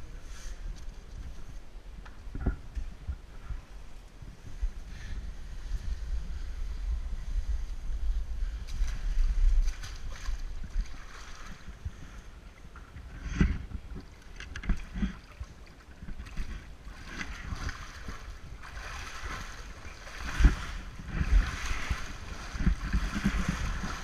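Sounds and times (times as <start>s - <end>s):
water splashing and sloshing: 8.6s - 24.0s.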